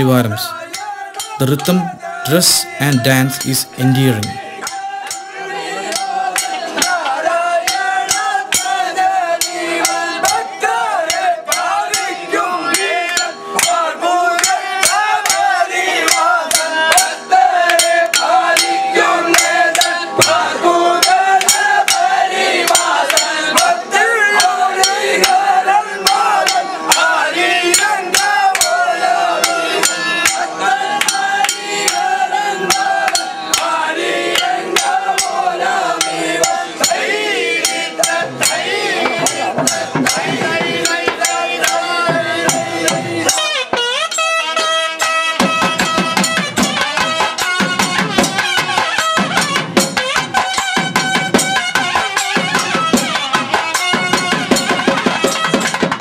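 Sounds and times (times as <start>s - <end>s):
men singing in chorus: 0.0s - 43.6s.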